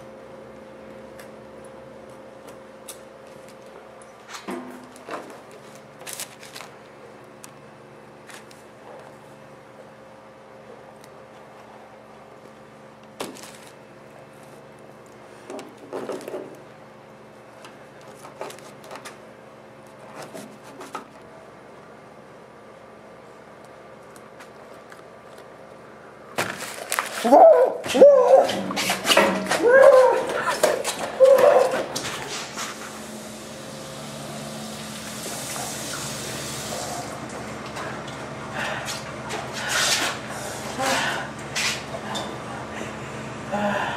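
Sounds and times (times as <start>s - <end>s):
steady low hum: 0.0s - 43.9s
tap water running into sink: 34.4s - 37.2s.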